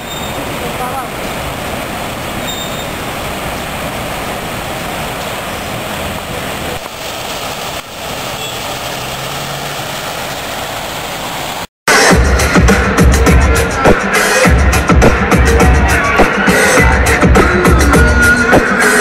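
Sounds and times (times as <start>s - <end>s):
fountain water rushing: 0.0s - 11.7s
road traffic: 0.0s - 11.7s.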